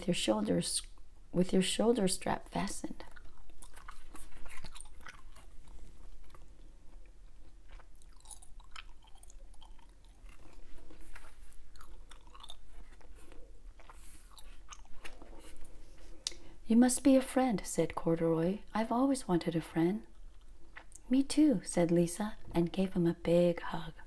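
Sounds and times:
gum chewing wet smacks: 3.0 - 16.4.

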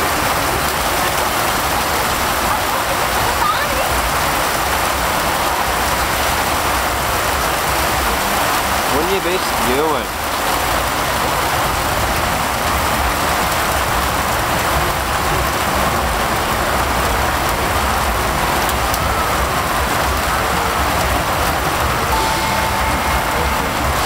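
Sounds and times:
heavy rain on a road: 0.0 - 24.0.

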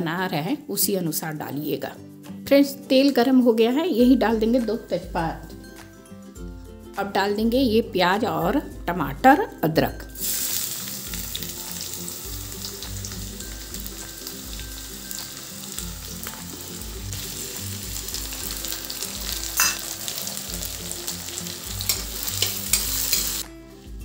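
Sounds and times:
vegetables sizzling in hot oil: 10.2 - 23.4.

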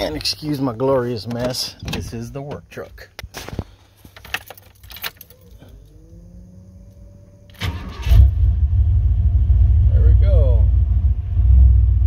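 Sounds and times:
keys rattling: 4.0 - 6.0
engine cranking and idling: 4.7 - 10.4
faint rising whine: 5.3 - 12.0.

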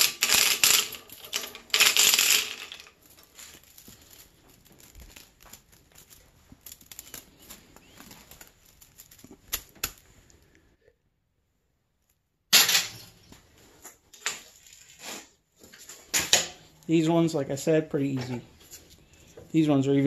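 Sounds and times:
loud clatter: 0.0 - 6.1
wire rustling and ticking: 0.0 - 10.7.

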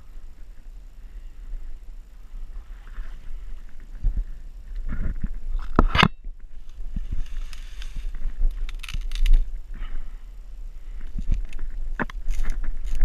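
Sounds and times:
low steady rumble: 0.0 - 13.0
twigs crackling and snapping: 4.7 - 9.6, 11.0 - 13.0.

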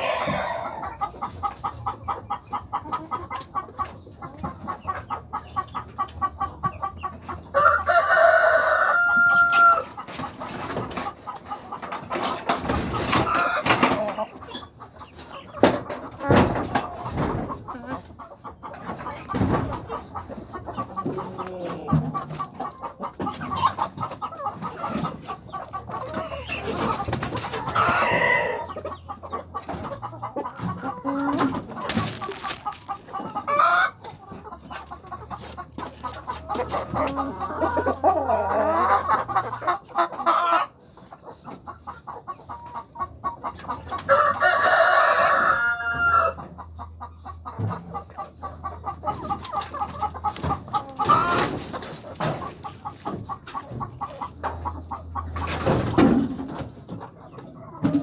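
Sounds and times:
rooster crowing: 0.0 - 0.8, 7.6 - 9.8, 44.1 - 46.4
hens clucking: 0.0 - 58.0.

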